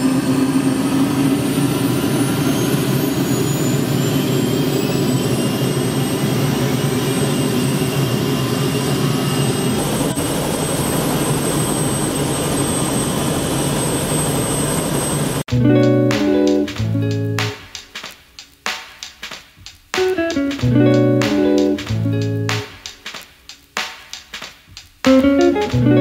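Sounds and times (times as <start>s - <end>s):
helicopter turbine engine whine: 0.0s - 15.4s.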